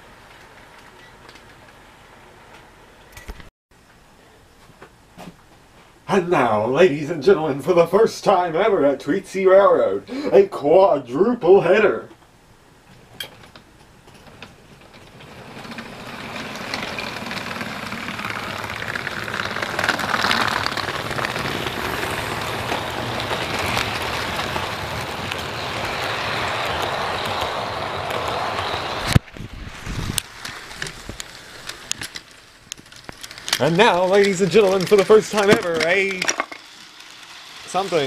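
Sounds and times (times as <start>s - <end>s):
model train motors whirring: 14.2s - 38.0s.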